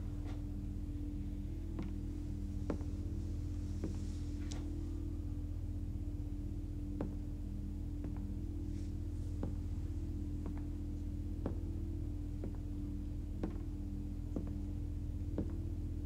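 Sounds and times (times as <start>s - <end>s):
steady low hum: 0.0s - 16.0s
footsteps on wooden floor: 1.7s - 3.2s, 3.8s - 4.8s, 7.0s - 7.3s, 8.0s - 8.8s, 9.4s - 9.8s, 10.4s - 10.8s, 11.4s - 11.8s, 12.4s - 12.7s, 13.4s - 14.7s, 15.4s - 15.6s.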